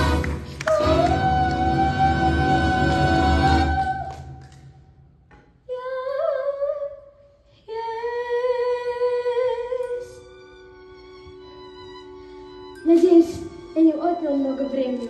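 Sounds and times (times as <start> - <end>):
person singing long notes: 0.0 - 4.3.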